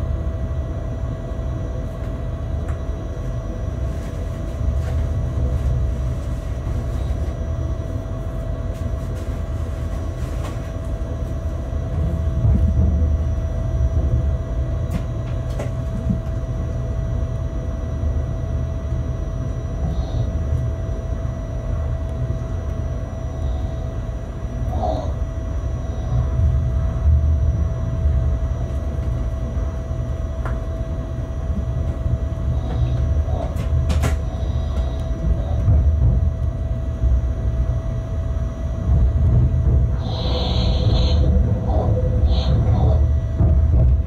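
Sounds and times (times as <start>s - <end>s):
constant whine: 0.0s - 44.0s
rumble of wheels on rails: 0.0s - 44.0s.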